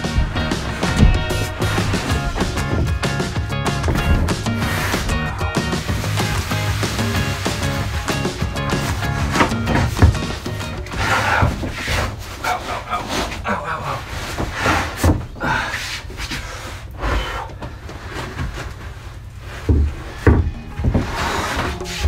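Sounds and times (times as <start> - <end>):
plywood scraping against timber: 0.0 - 22.0
plywood knock: 19.7 - 21.2.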